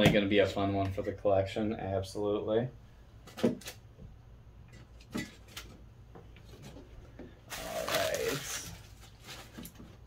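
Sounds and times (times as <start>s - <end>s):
objects being handled: 4.7s - 10.0s.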